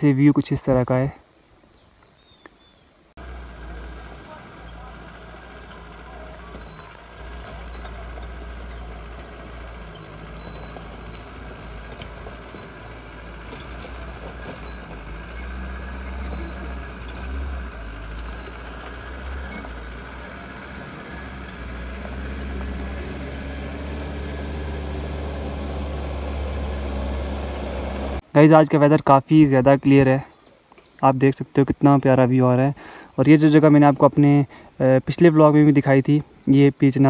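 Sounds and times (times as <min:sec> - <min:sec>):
jeep engine driving on dirt track: 0:03.2 - 0:28.3.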